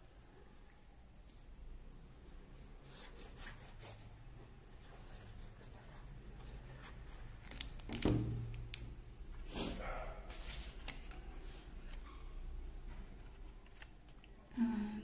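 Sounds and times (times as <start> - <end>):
craft paper rustling: 10.3 - 14.3.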